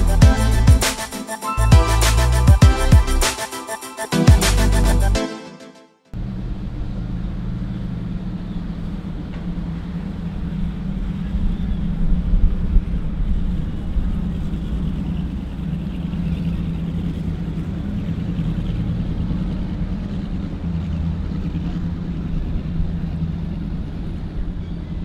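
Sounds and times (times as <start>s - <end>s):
motorboat engines droning: 6.2s - 25.0s.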